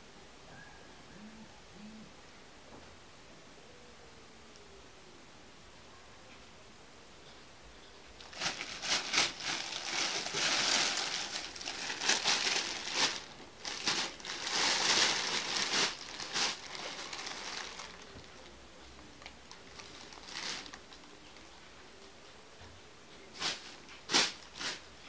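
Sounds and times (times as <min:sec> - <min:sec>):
plastic bag crinkling: 0:08.2 - 0:18.5, 0:19.2 - 0:21.2.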